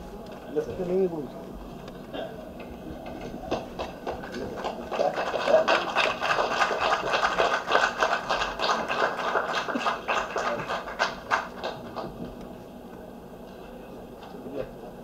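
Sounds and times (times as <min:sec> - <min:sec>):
audience applause: 0:03.5 - 0:12.2.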